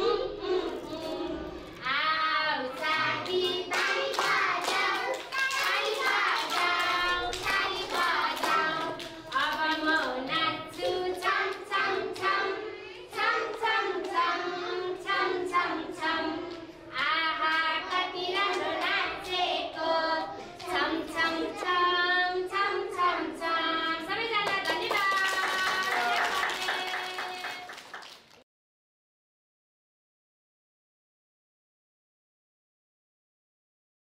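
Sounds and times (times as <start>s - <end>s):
children singing: 0.0s - 24.1s
children clapping: 2.7s - 12.5s, 24.4s - 28.4s.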